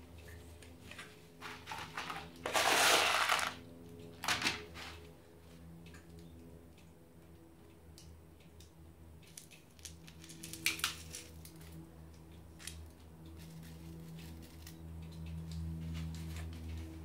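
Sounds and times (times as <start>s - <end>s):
grit pattering onto gravel: 1.7s - 3.6s.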